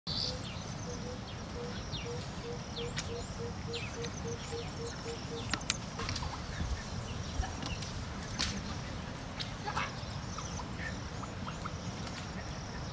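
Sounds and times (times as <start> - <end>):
bird chirps: 0.1 - 5.9.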